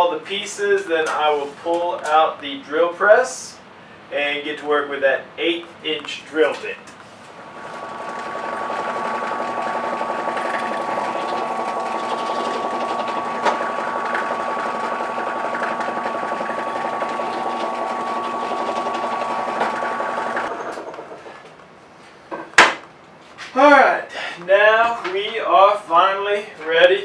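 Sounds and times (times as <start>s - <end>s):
drill press motor whine: 7.4s - 21.2s.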